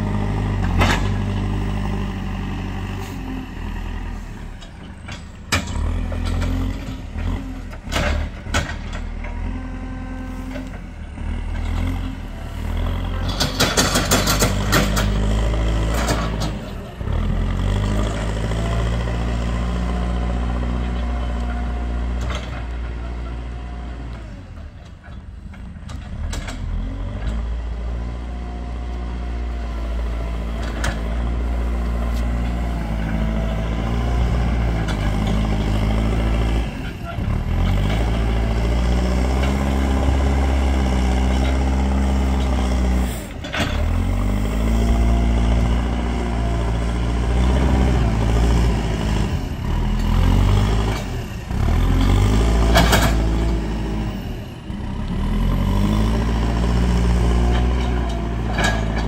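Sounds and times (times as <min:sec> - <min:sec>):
diesel engine working under load: 0:00.0 - 0:59.0
loud clatter: 0:13.2 - 0:16.6.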